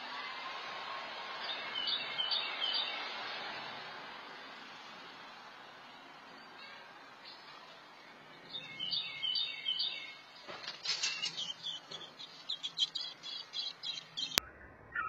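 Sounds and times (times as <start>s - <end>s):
nestlings chirping: 8.5s - 14.4s.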